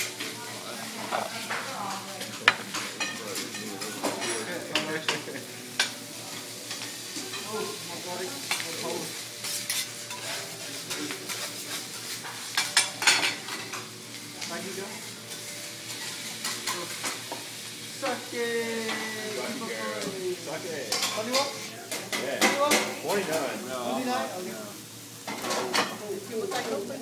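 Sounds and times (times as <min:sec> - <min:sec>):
food sizzling on a griddle: 0:00.0 - 0:27.0
metal spatulas scraping and clacking: 0:09.4 - 0:14.5, 0:20.9 - 0:22.9.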